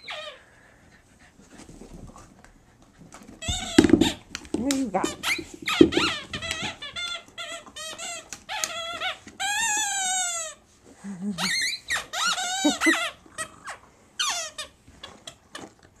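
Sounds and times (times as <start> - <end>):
squeaky dog toy squeaking: 5.0 - 10.6, 11.4 - 14.8.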